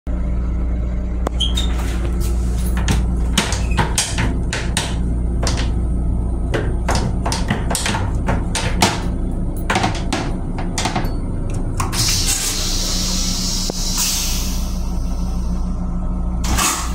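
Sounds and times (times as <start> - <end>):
low rumble of railcar: 0.1 - 16.9
knocks and rattles: 1.3 - 12.0.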